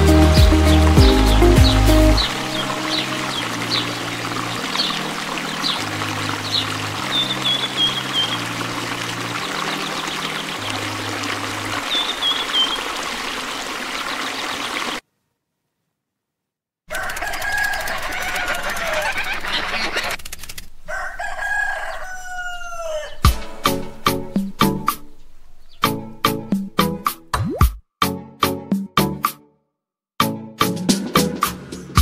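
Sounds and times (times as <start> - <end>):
water pouring into a tub: 2.2 - 15.0.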